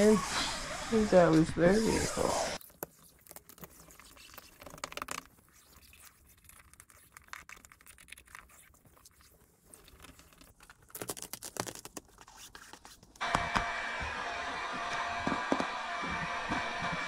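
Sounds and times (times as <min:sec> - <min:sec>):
squeegee scraping vinyl film: 0:00.0 - 0:13.6
loud steady whirring: 0:13.2 - 0:17.0.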